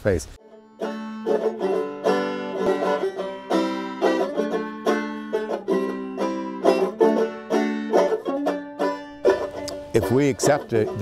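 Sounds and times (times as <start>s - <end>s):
plucked string instrument music: 0.4s - 11.0s.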